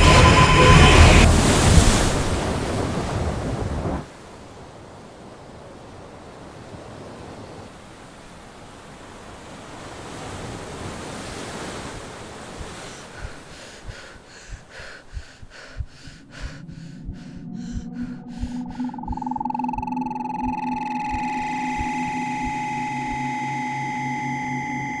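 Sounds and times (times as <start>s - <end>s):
ocean waves washing: 0.0s - 25.0s
low thuds: 15.4s - 22.7s
short rhythmic pulses: 15.8s - 25.0s.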